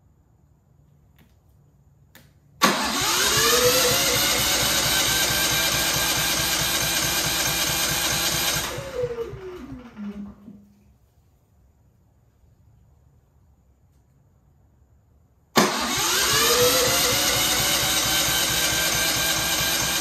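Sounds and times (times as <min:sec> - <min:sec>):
generator starter cranking: 0:02.6 - 0:10.4, 0:15.6 - 0:20.0.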